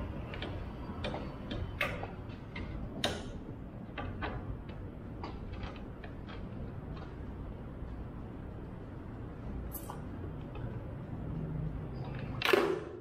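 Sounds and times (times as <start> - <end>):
hands clicking and tapping parts: 0.0 - 7.6.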